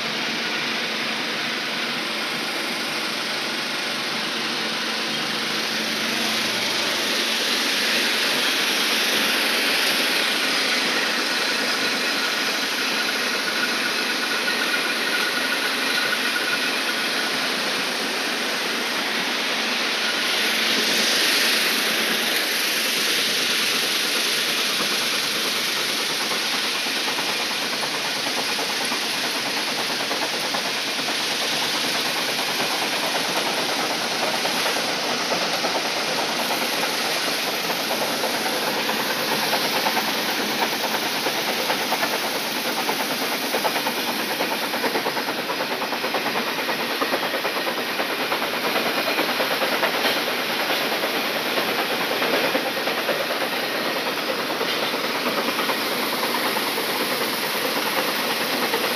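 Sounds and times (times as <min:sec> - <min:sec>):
stone crusher machinery: 0:19.5 - 0:58.9.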